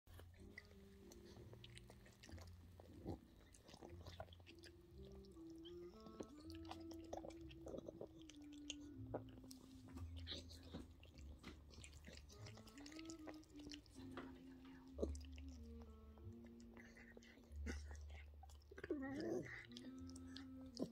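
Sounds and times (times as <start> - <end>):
dog licking and slurping: 0.1 - 20.9.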